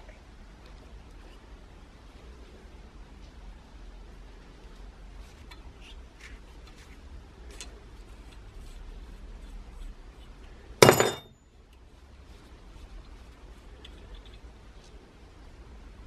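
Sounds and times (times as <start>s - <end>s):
sharp metallic clink: 10.8s - 11.4s.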